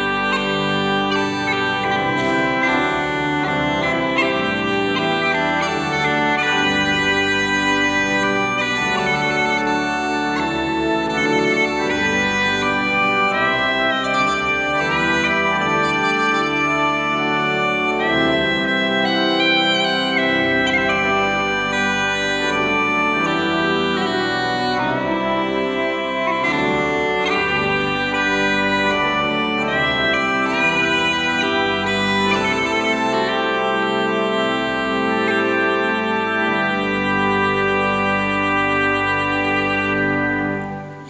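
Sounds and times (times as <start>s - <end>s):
pipe organ: 0.0s - 41.0s
uilleann pipes melody with drones: 0.0s - 41.0s.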